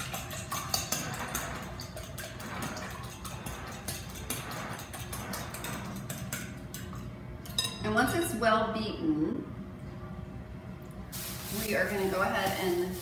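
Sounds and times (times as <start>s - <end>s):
eggs beaten in glass bowl: 0.0s - 7.0s.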